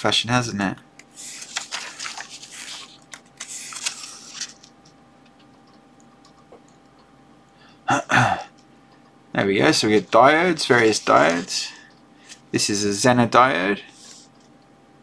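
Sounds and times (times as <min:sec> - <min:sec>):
paper pages rustling: 0:01.2 - 0:04.7, 0:09.9 - 0:11.7.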